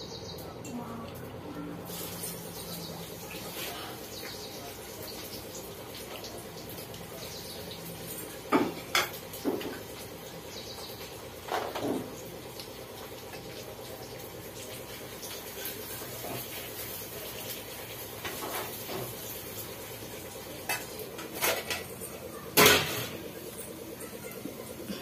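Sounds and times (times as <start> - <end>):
utensils and bowls clinking: 0.4 - 10.1, 20.2 - 25.0.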